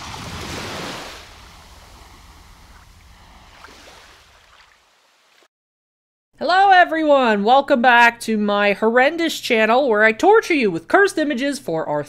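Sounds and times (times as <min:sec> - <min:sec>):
rushing water wave: 0:00.0 - 0:05.5.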